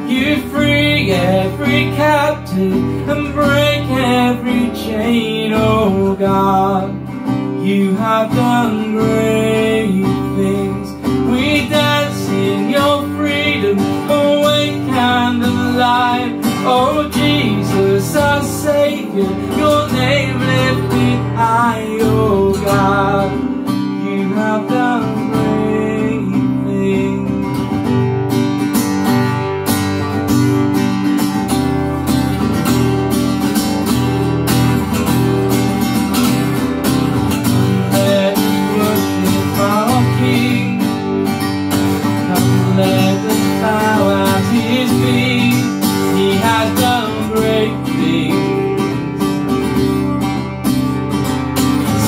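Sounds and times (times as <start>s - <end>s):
person singing: 0.0s - 27.8s, 37.5s - 49.9s
acoustic guitar strumming: 0.0s - 52.0s.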